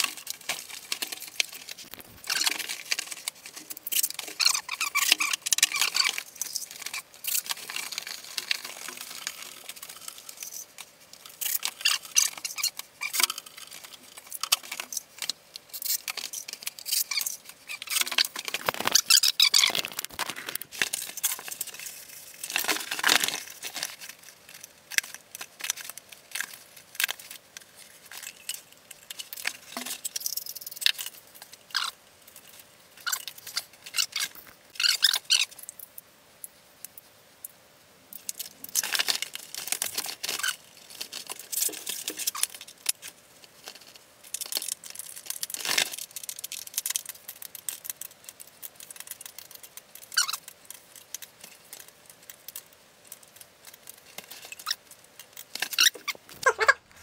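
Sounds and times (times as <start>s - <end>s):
vinyl liner crinkling and tearing: 0.0s - 30.2s, 38.2s - 57.0s.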